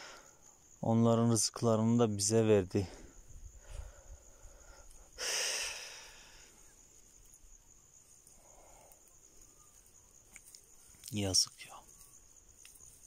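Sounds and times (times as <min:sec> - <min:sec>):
breathy exhale: 0:00.0 - 0:00.4, 0:03.6 - 0:06.7
insect chirring: 0:00.0 - 0:13.0.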